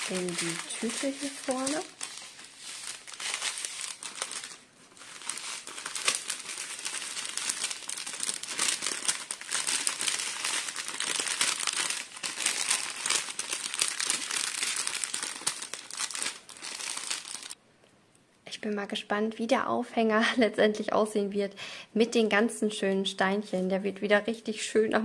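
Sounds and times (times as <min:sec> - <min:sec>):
plastic packaging crinkling: 0:00.0 - 0:17.6.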